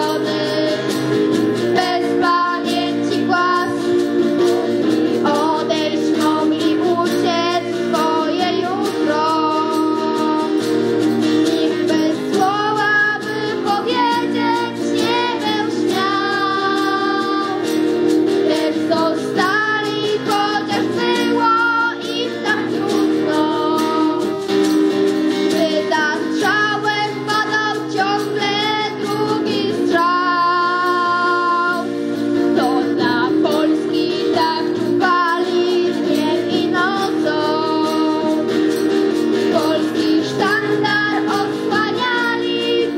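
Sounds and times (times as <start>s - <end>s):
strummed acoustic guitar: 0.0s - 42.9s
girls' choir singing: 11.6s - 17.7s.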